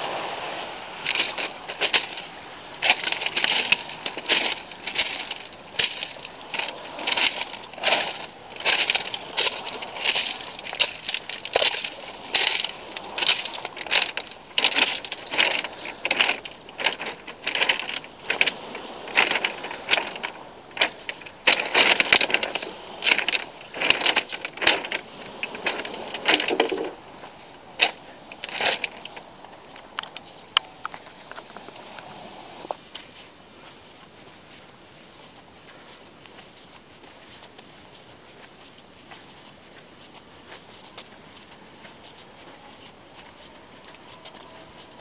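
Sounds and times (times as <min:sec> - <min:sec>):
footsteps on pebbles: 0:00.0 - 0:45.0.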